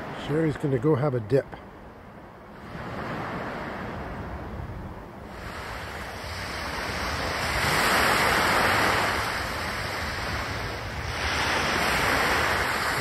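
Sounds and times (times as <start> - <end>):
wind on microphone: 1.8 - 13.0
small waves on pebbles: 5.3 - 13.0.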